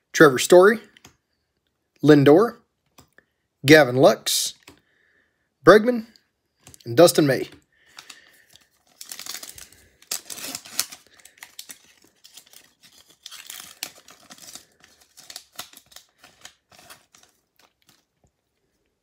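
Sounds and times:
wrapper crinkling and tearing: 7.9 - 18.3.

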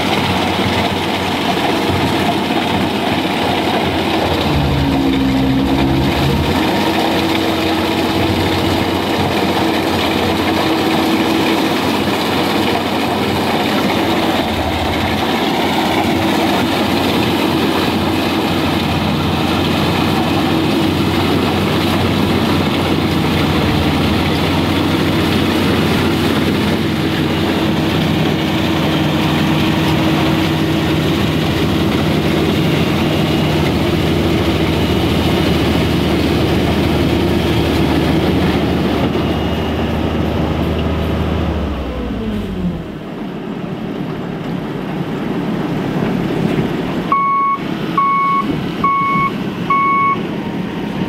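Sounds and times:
combine harvester engine running: 0.0 - 51.0
short electronic beeps: 47.1 - 50.2.

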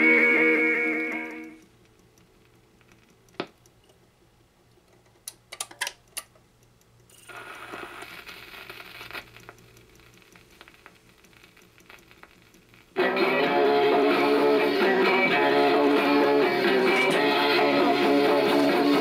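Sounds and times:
record changer clicks: 1.0 - 7.1
stylus crackle: 1.3 - 4.0, 6.7 - 13.2.

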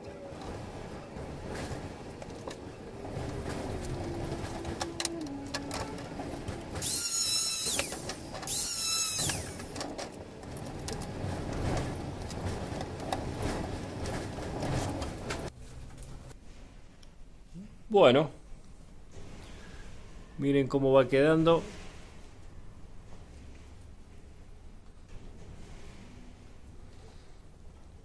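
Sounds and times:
angle grinder whining: 3.8 - 9.8.

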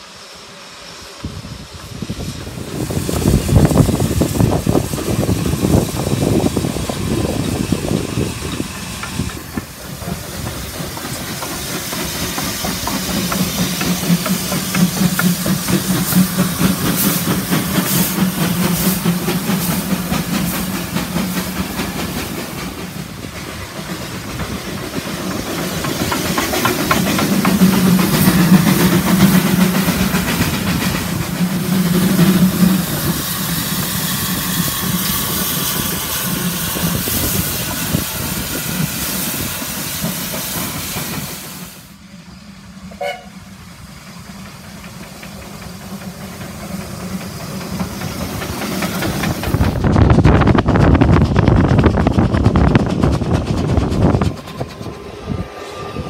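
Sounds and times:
steam hissing: 0.0 - 56.0
train wheels clattering on rails: 1.0 - 56.0
train whistle toot: 42.9 - 43.5.

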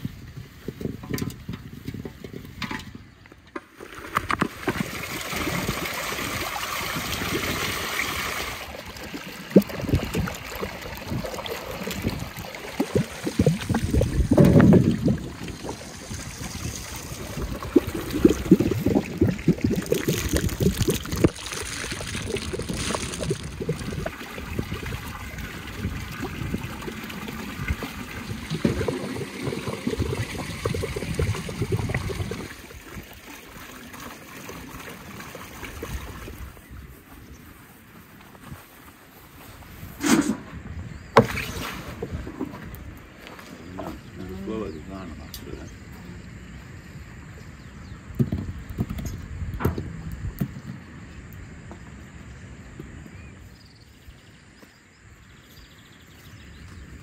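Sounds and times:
trickle of water: 3.9 - 37.7.

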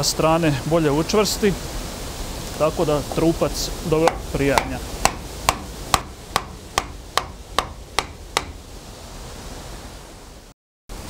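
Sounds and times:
wooden mallet knocking wedge: 4.0 - 8.6.

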